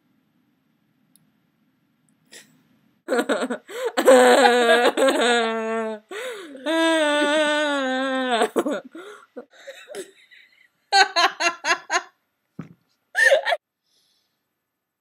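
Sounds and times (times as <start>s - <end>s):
women laughing: 9.9s - 12.1s.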